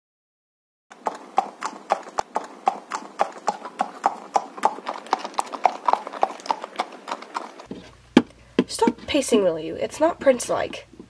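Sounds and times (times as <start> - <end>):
horse hooves clip-clopping: 0.9 - 9.2.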